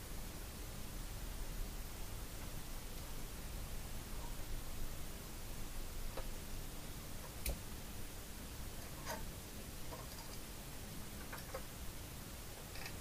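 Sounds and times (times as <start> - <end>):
low steady hiss: 0.0 - 13.0
soldering ticks: 7.2 - 7.6.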